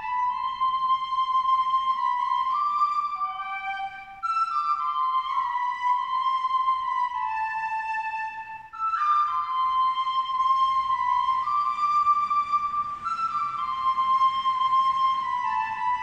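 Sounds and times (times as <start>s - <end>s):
door whistling: 8.7s - 16.0s.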